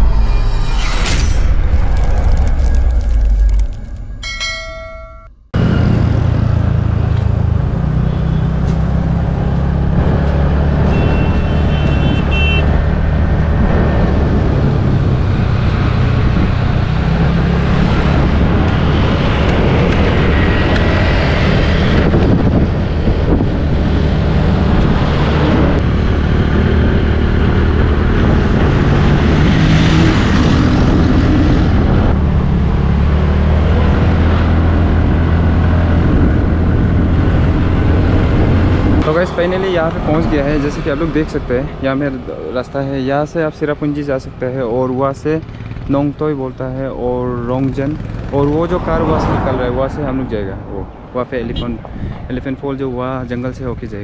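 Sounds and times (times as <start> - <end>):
vehicle engine and road noise: 0.0 - 54.0
ringing chime: 4.1 - 5.5
wind buffeting microphone: 11.9 - 32.8, 33.4 - 42.0.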